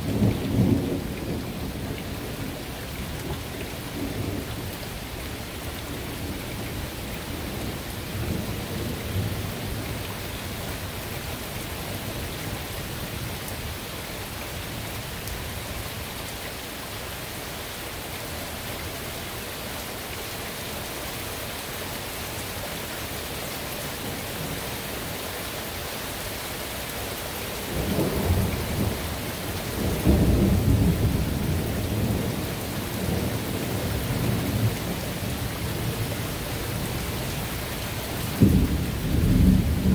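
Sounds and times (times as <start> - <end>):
steady rain hiss: 0.0 - 39.9
rolling thunder: 27.7 - 29.1, 29.7 - 34.8, 38.3 - 39.9.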